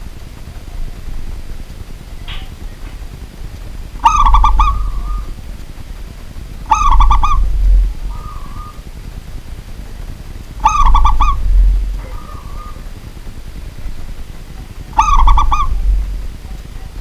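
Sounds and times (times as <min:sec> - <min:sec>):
dove cooing song: 0:04.0 - 0:05.6, 0:06.6 - 0:09.0, 0:10.5 - 0:17.0.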